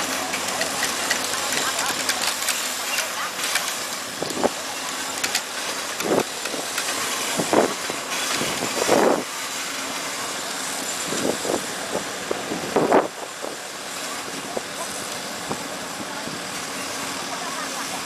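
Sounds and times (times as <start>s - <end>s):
engine running: 0.0s - 18.0s
wind noise: 7.3s - 9.3s, 11.0s - 13.6s.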